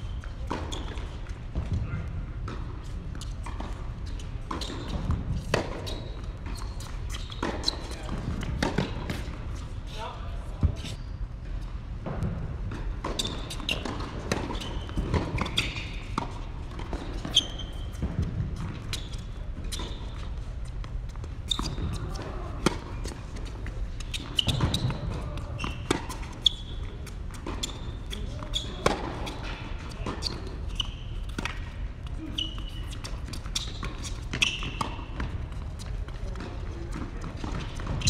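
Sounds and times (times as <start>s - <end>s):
shoes squeaking on court: 0.0s - 38.0s
ball bouncing on court: 0.2s - 3.8s, 12.0s - 26.7s, 28.4s - 31.7s.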